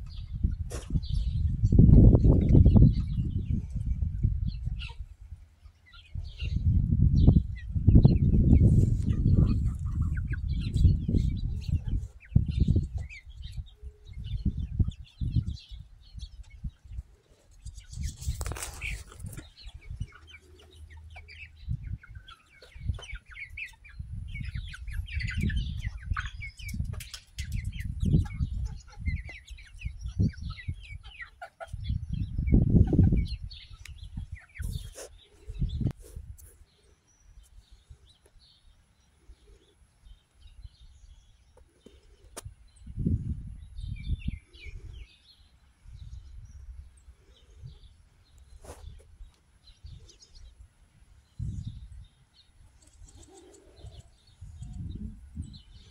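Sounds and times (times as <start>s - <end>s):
chickens chirping and clucking: 0.0s - 55.9s
low rumbling bursts on microphone: 54.2s - 55.9s.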